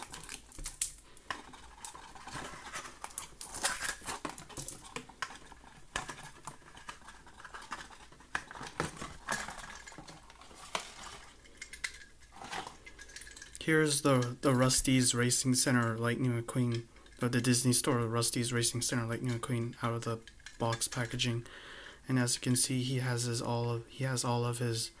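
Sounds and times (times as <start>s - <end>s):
cardboard and plastic rustling: 0.0s - 15.0s.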